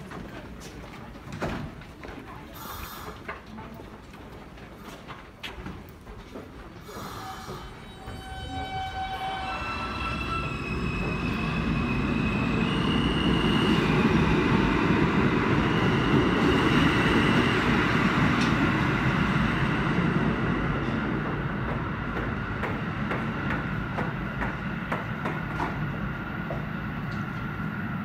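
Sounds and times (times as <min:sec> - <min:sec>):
subway train whining tones: 0:06.7 - 0:28.0.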